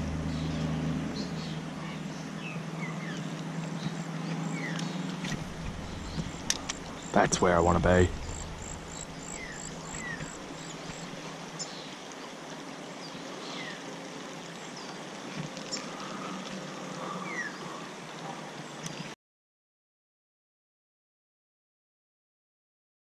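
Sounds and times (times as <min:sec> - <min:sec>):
creek rushing: 0:00.0 - 0:16.7
small birds chirping: 0:00.0 - 0:19.2.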